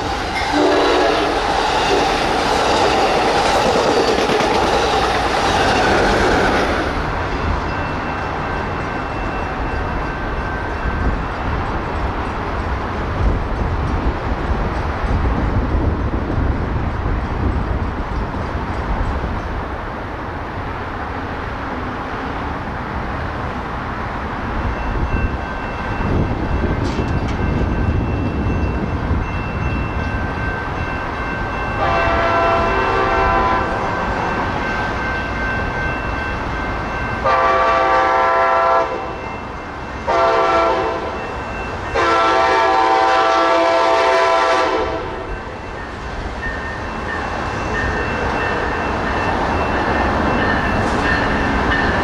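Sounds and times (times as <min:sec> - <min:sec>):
train horn blasts: 0:00.4 - 0:01.4, 0:31.8 - 0:34.1, 0:37.2 - 0:39.2, 0:40.0 - 0:41.2, 0:41.9 - 0:45.3.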